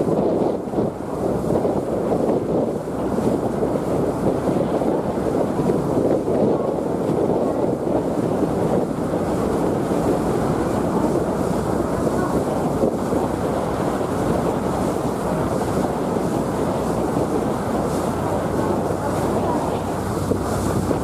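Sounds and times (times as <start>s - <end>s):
ferry engine hum: 0.0s - 21.0s
rush of water: 0.0s - 21.0s
wind buffeting microphone: 0.0s - 21.0s.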